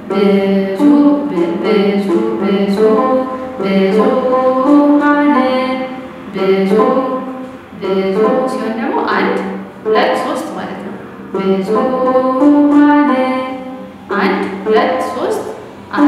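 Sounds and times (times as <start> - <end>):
woman singing a hymn: 0.0 - 16.0.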